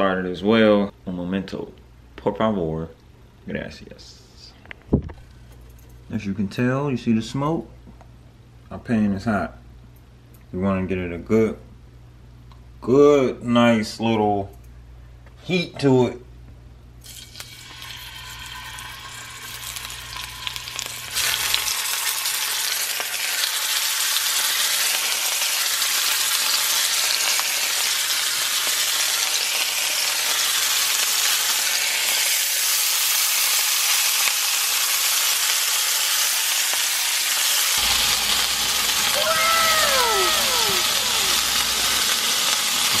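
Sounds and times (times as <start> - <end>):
meat sizzling in hot oil: 17.0 - 43.0.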